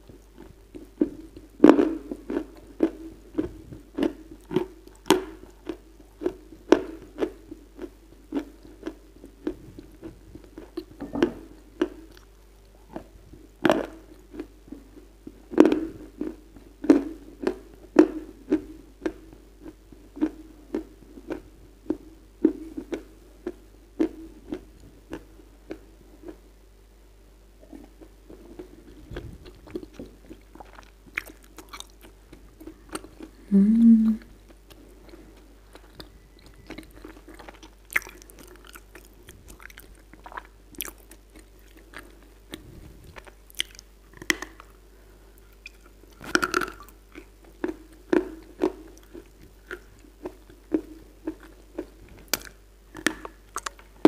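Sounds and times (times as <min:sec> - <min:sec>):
crunchy chewing: 0:27.6 - 0:33.4, 0:34.6 - 0:44.8, 0:45.4 - 0:53.8.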